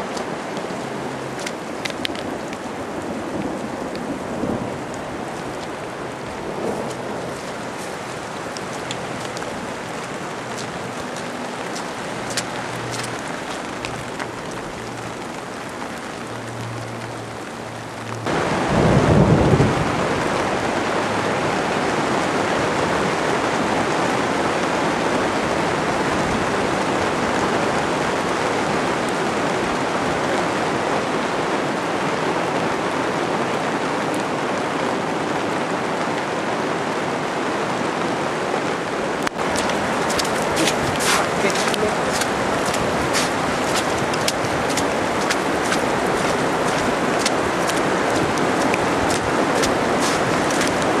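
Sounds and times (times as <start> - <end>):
heavy rain pouring: 0.0 - 51.0
low rumble of thunder: 18.3 - 20.4.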